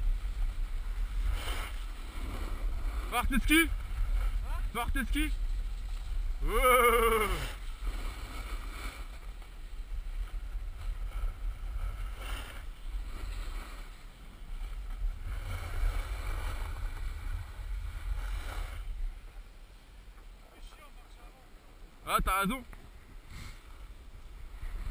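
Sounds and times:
skis scraping over snow: 0.0s - 24.9s
person shouting: 6.4s - 7.5s
wind buffeting microphone: 22.9s - 24.9s.

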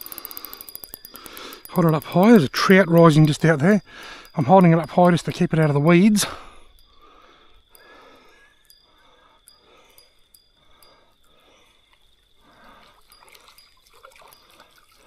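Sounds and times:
fishing reel ticking: 0.0s - 15.0s
water splashing: 12.7s - 15.0s.

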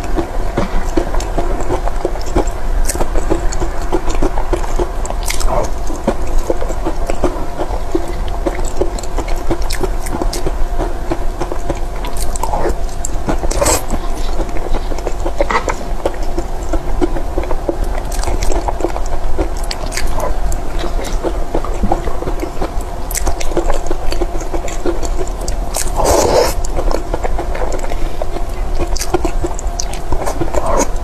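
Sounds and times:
cake chewing: 0.0s - 31.0s
steady low hum: 0.0s - 31.0s.

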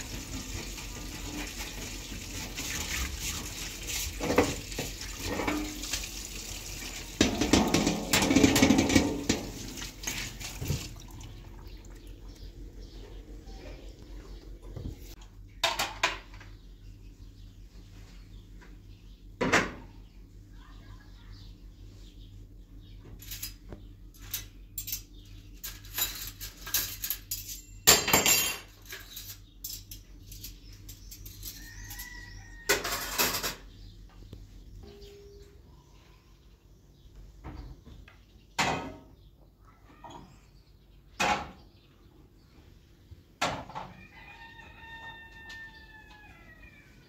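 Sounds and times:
knocks and clatter of handling: 7.2s - 11.0s.

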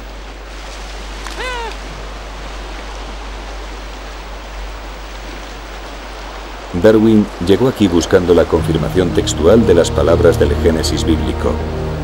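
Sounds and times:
shoreline wash: 0.0s - 12.0s
gull crying: 1.3s - 1.9s.

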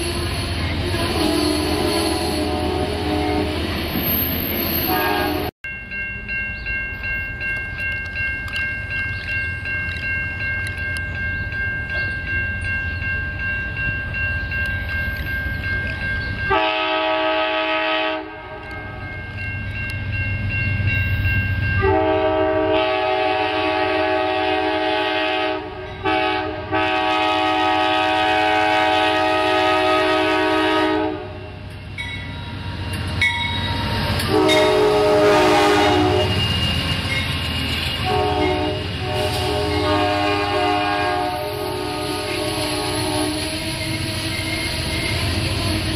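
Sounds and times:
train air horn: 0.0s - 3.7s, 4.7s - 5.5s, 16.5s - 18.9s, 21.8s - 31.6s, 34.2s - 36.5s, 38.0s - 44.4s
train rumbling: 0.0s - 45.9s.

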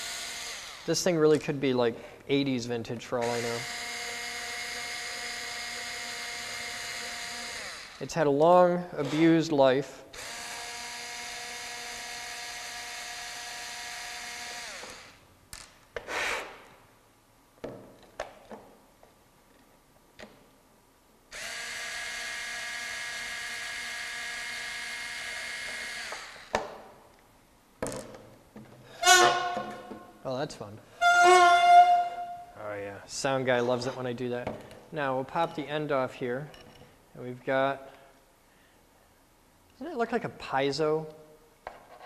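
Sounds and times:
electric screwdriver whining: 0.0s - 0.9s, 3.2s - 8.0s, 9.0s - 9.4s, 10.2s - 15.2s, 21.4s - 26.6s.

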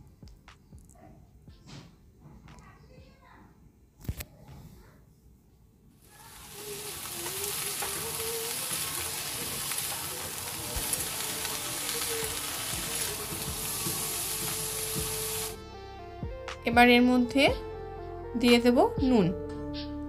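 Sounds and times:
vegetables sizzling in hot oil: 6.0s - 15.6s.

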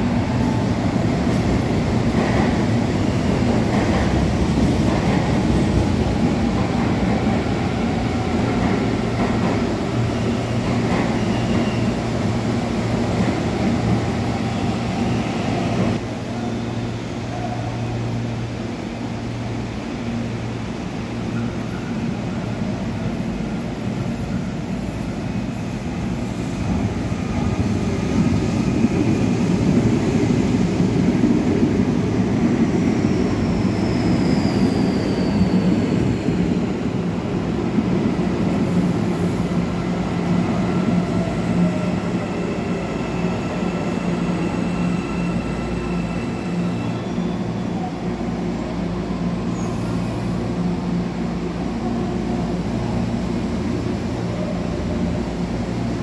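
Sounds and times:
train rumbling: 0.0s - 56.0s
faint brake squeals: 11.0s - 12.0s, 33.1s - 36.0s, 42.8s - 48.0s.

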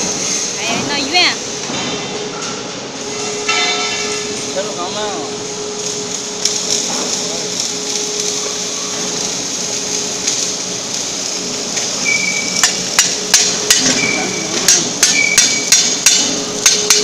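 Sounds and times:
steady hiss: 2.8s - 17.0s
tool striking steel plate: 12.6s - 17.0s.

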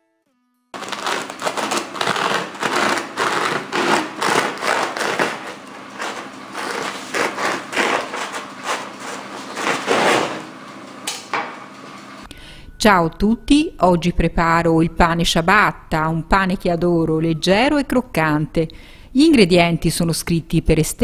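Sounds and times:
bread knife sawing crust: 0.8s - 10.5s.

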